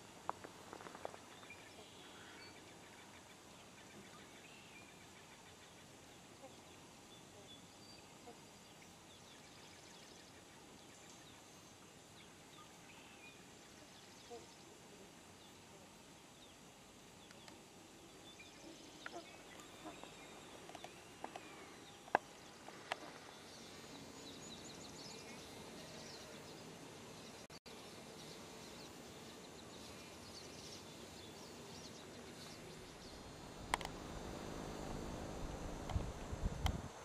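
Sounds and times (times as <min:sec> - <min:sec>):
wind buffeting microphone: 0:33.6 - 0:37.0
sharp clicks: 0:33.7 - 0:34.0.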